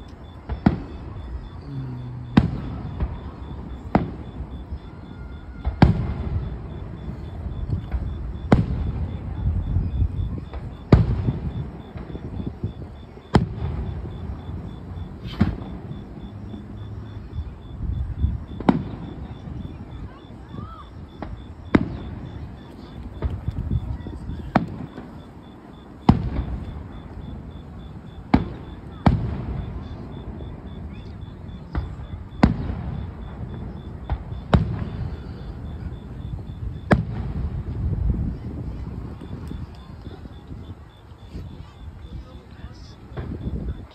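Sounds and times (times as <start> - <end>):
firework shells booming: 0.2 - 40.4, 43.0 - 43.8
firework shells bursting: 13.3 - 16.8.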